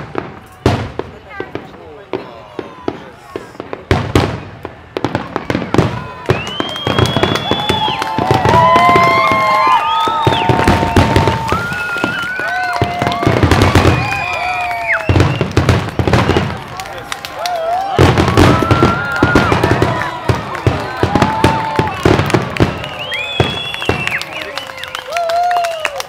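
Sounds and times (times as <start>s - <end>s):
fireworks bangs and crackling: 0.0s - 26.0s
fireworks whistles: 3.2s - 16.7s, 21.0s - 25.2s.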